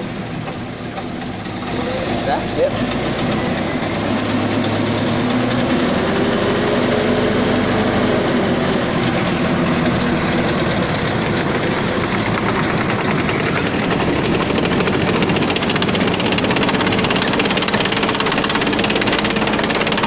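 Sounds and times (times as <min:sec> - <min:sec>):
tank engine running: 0:00.0 - 0:20.0
rapid fine ticking: 0:08.7 - 0:20.0.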